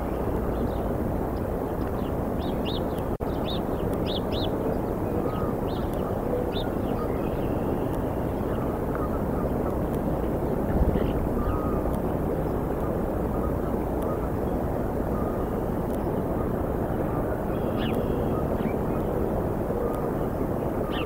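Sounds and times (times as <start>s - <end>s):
low outdoor rumble: 0.0s - 21.0s
songbirds chirping: 0.0s - 21.0s.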